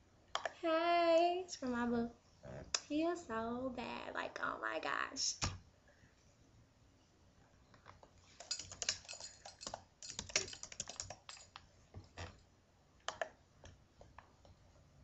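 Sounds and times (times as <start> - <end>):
typing on computer keyboard: 8.4 - 11.6.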